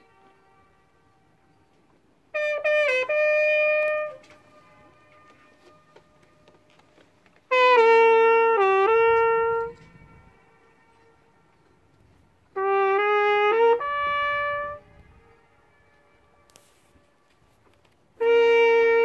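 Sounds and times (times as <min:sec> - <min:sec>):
trumpet echoes off cliffs: 0:00.0 - 0:19.0
trumpet playing held notes: 0:00.0 - 0:19.0.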